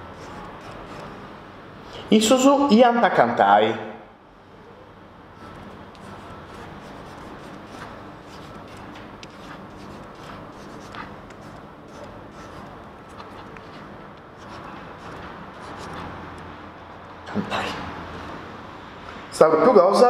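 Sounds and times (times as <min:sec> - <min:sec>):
stylus scratching on glass: 0:00.0 - 0:01.3, 0:05.4 - 0:16.5
steady low hum: 0:00.0 - 0:20.0.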